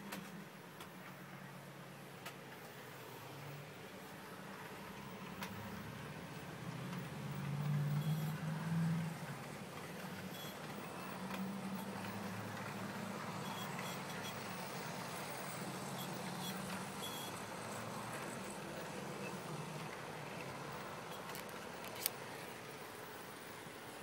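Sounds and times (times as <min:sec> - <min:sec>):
wheels clicking on rails: 0:04.5 - 0:24.0
model train motor humming: 0:06.8 - 0:24.0.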